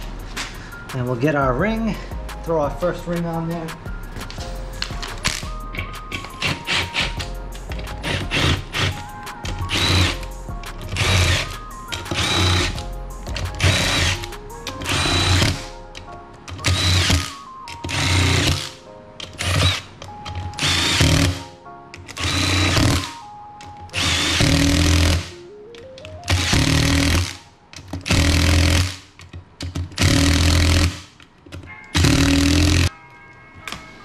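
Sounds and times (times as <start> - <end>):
background music: 0.0 - 34.0
impact driver bursts: 9.7 - 10.2, 10.9 - 12.8, 13.6 - 14.2, 14.8 - 15.7, 16.6 - 18.7, 20.6 - 21.4, 22.1 - 23.1, 24.0 - 25.3, 26.3 - 27.4, 28.0 - 29.0, 30.0 - 31.1, 32.0 - 32.9.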